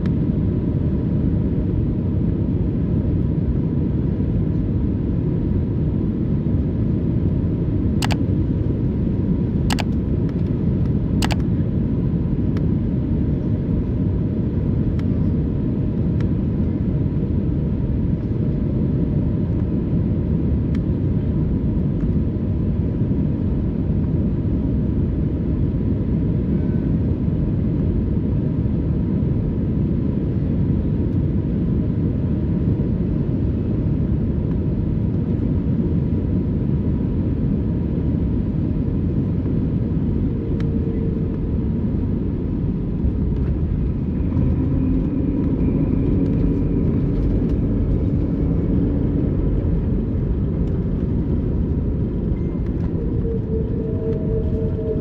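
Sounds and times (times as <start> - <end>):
airliner cabin rumble: 0.0 - 55.0
faint steady high tone: 52.3 - 55.0.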